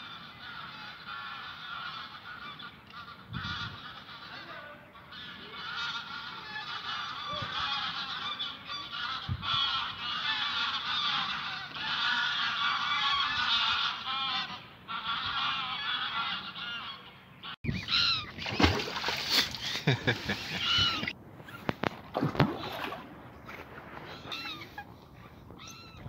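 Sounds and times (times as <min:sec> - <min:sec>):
flock of geese honking: 0:00.0 - 0:18.4, 0:20.5 - 0:21.2.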